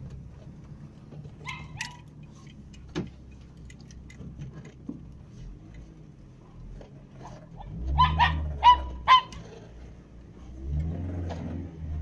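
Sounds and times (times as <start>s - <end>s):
car engine idling: 0.0s - 10.9s
dogs barking and yelping: 1.4s - 2.1s, 7.2s - 9.5s.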